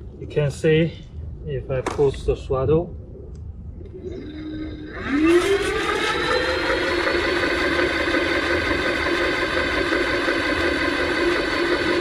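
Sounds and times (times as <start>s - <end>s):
hub motor whine: 3.8s - 12.0s.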